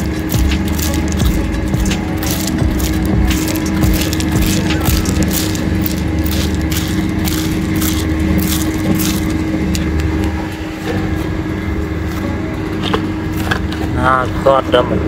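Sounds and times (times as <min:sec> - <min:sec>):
crackles and clicks: 0:00.0 - 0:10.9
motor droning: 0:00.0 - 0:15.0.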